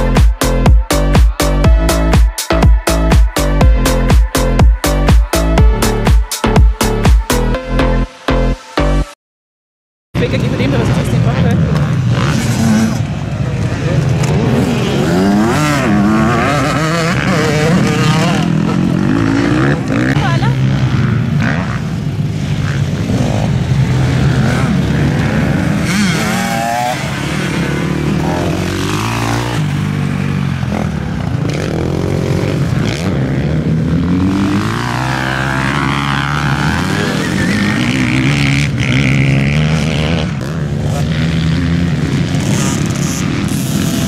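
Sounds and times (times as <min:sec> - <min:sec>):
engines revving: 0:10.2 - 0:44.0.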